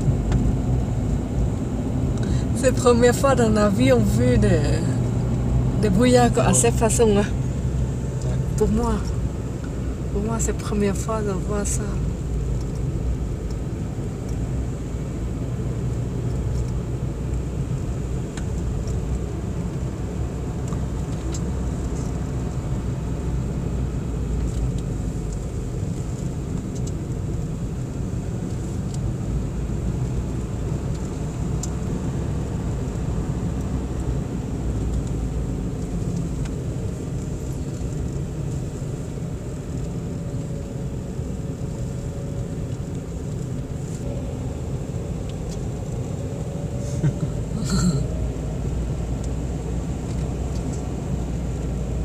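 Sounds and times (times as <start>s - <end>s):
engine and tyre rumble: 0.0s - 52.0s.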